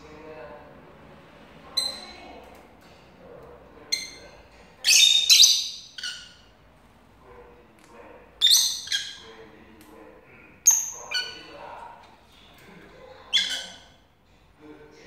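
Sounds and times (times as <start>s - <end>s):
lovebirds calling: 1.7s - 2.4s, 3.8s - 6.6s, 8.4s - 9.7s, 10.3s - 11.8s, 13.1s - 14.0s.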